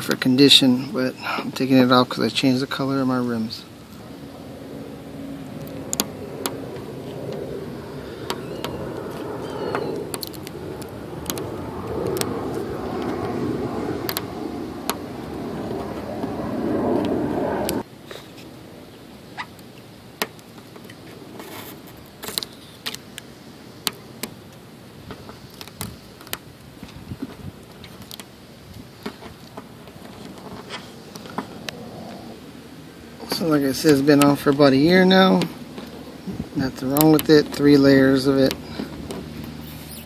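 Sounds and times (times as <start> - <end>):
steady low rumbling: 0.7 - 17.9
rubber coating peeling clicks: 9.7 - 13.3.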